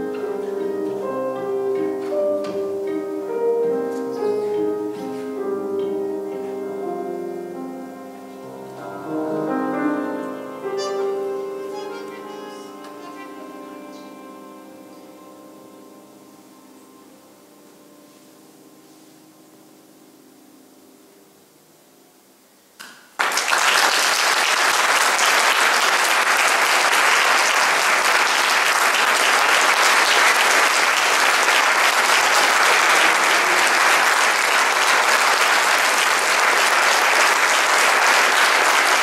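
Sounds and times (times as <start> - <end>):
single clap: 22.8 - 39.0
audience applause: 23.2 - 39.0.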